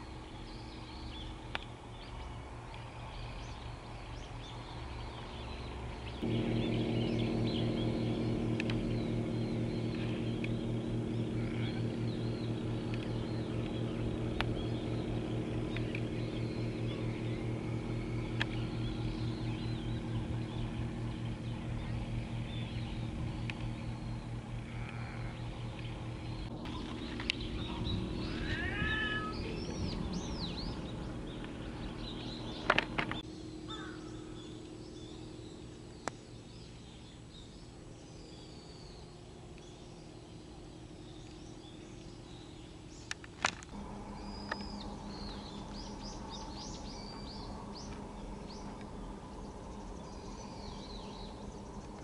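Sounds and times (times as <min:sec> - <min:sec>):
diesel engine drone: 0:00.0 - 0:52.0
sharp clicks: 0:08.6 - 0:08.9, 0:15.5 - 0:16.2
crow cawing: 0:33.7 - 0:34.3.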